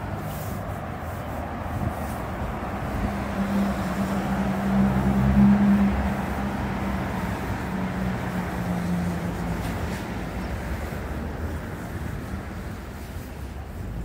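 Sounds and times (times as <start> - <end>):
vehicle engine passing: 2.0 - 11.8.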